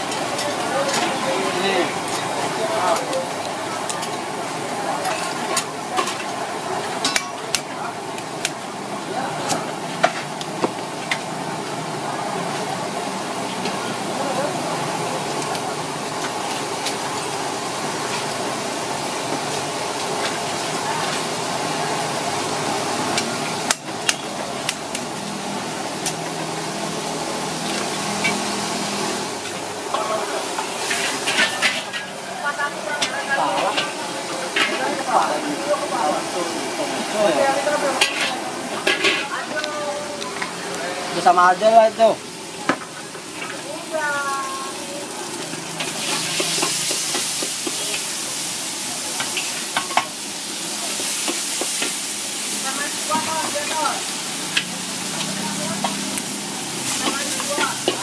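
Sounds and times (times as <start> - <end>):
paste sizzling in hot oil: 0.0 - 58.0
steady background noise: 0.0 - 58.0
metal spatula scraping a wok: 30.7 - 32.1.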